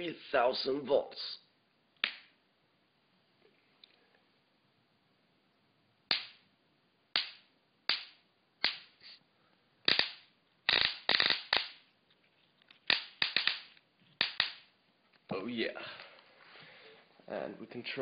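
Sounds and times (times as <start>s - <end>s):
high-voltage sparks snapping: 9.9s - 11.9s, 12.8s - 14.7s.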